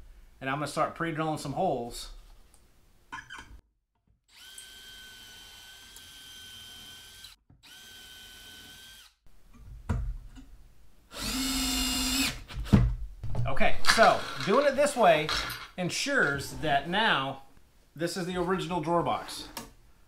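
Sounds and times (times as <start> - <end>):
cordless drill whining: 4.3 - 9.2, 11.1 - 12.6
drill-driver driving a screw: 4.3 - 9.2, 11.1 - 12.6.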